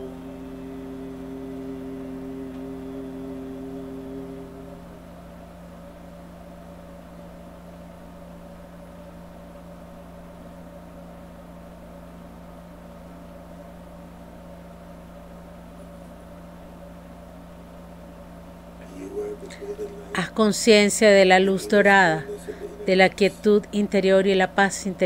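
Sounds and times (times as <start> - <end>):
steady low drone: 0.0 - 5.5, 18.8 - 23.7.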